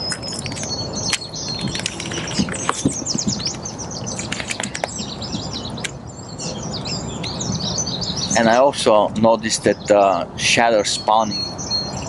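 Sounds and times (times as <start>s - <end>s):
songbirds chirping and trilling: 0.0s - 12.0s.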